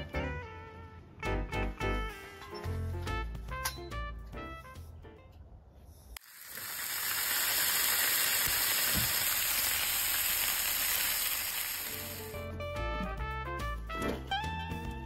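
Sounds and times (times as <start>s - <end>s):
meat sizzling on griddle pan: 6.2s - 12.4s.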